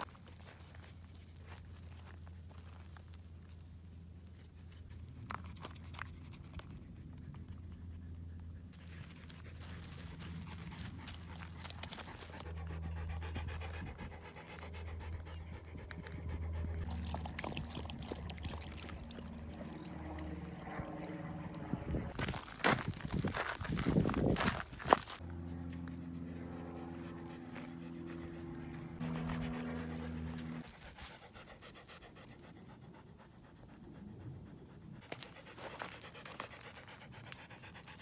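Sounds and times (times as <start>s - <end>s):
steady low hum: 0.0s - 38.0s
dog panting: 8.8s - 22.4s, 26.0s - 38.0s.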